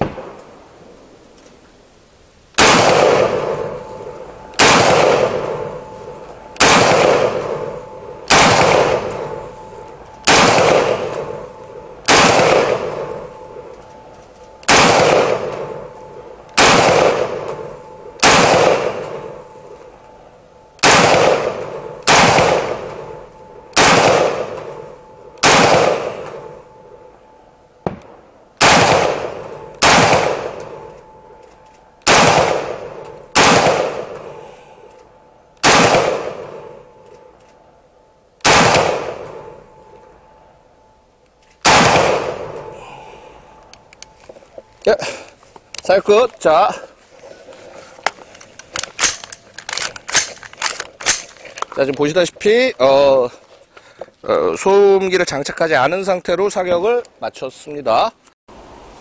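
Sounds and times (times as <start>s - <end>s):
gunshots with long echo: 0.0s - 1.2s, 2.5s - 44.1s.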